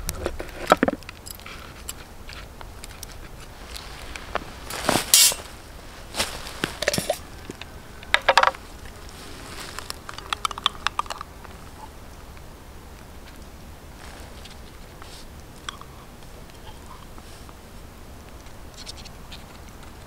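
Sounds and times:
cookware clinks and rustles: 0:04.9 - 0:05.5, 0:06.7 - 0:07.2
small clicks: 0:09.7 - 0:11.6.

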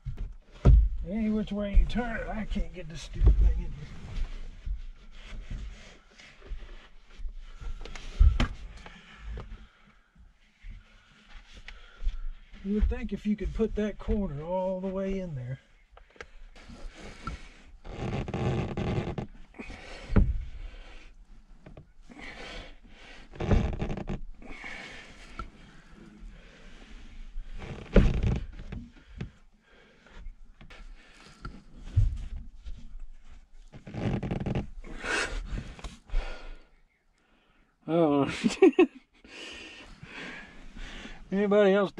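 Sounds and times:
heavy breathing and grunts: 0:18.6 - 0:21.2, 0:22.0 - 0:27.6, 0:34.8 - 0:36.8.

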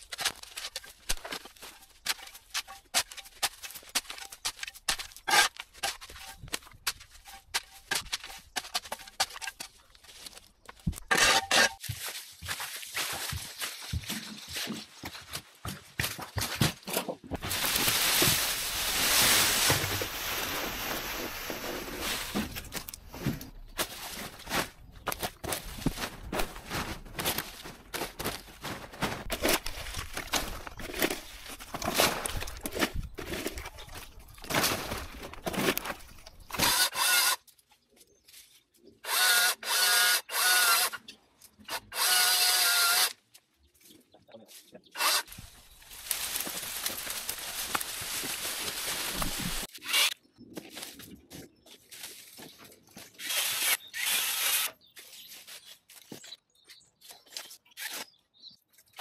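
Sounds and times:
hoe scraping through soil and leaves: 0:00.0 - 0:15.0, 0:17.4 - 0:37.3, 0:45.0 - 0:50.2
twigs crackling and rustling: 0:16.8 - 0:36.6, 0:45.2 - 0:49.8.

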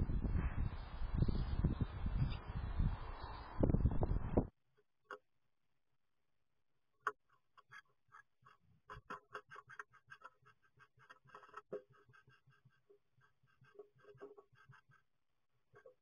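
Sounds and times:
bird scratching and tapping on wood: 0:07.0 - 0:15.1, 0:15.7 - 0:16.0.

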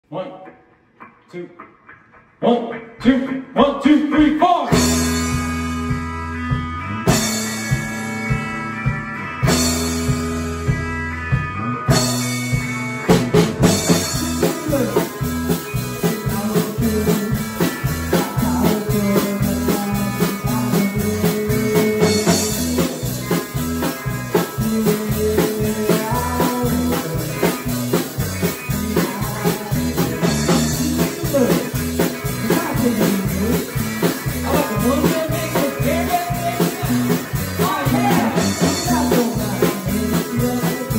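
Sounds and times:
band playing country blues: 0:00.5 - 0:40.9.

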